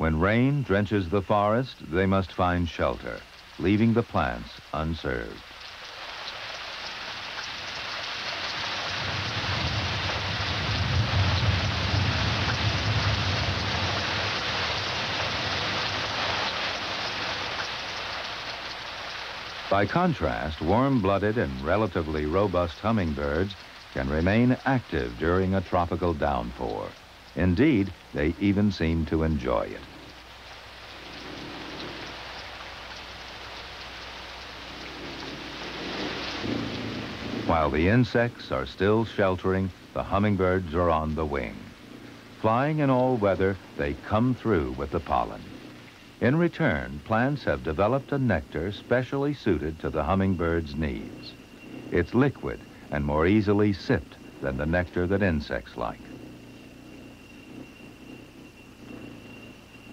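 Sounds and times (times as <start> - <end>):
rain pouring on foliage: 0.0 - 59.9
low rumble: 7.8 - 18.8, 19.6 - 38.4.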